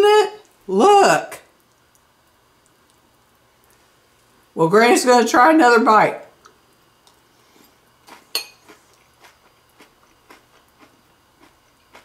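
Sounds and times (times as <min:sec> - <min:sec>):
cereal crunching: 0:08.0 - 0:12.0
spoon clinking glass bowl: 0:08.3 - 0:08.6.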